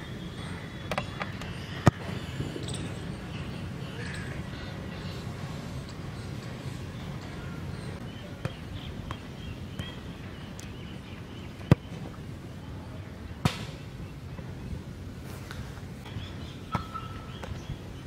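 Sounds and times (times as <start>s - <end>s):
ringing ball impact: 16.7s - 17.2s.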